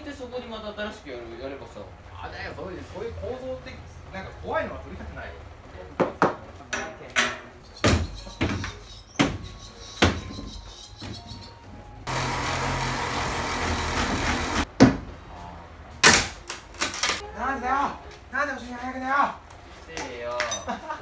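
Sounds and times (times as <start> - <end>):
handheld power tool running: 12.1 - 14.7.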